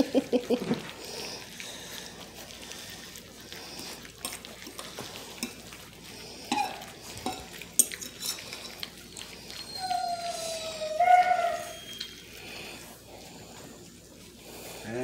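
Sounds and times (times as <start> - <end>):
puppies lapping food: 0.0 - 15.0
puppy whining: 3.5 - 12.9.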